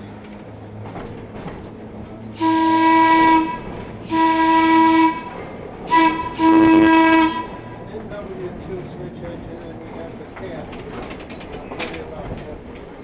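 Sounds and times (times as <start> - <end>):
streetcar horn blasts: 2.3 - 7.9.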